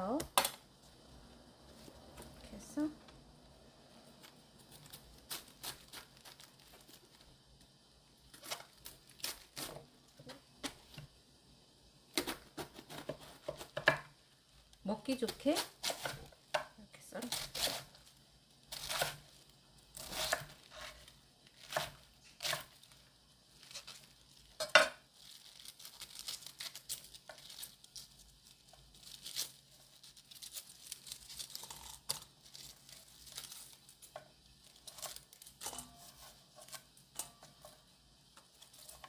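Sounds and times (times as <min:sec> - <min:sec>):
cabbage leaves tearing: 0:04.2 - 0:07.3, 0:08.3 - 0:09.8, 0:17.2 - 0:24.6, 0:25.2 - 0:36.9
knife cutting cabbage on board: 0:12.1 - 0:13.9, 0:15.3 - 0:16.4, 0:17.2 - 0:17.9, 0:18.7 - 0:19.2, 0:20.0 - 0:21.0, 0:21.6 - 0:22.7.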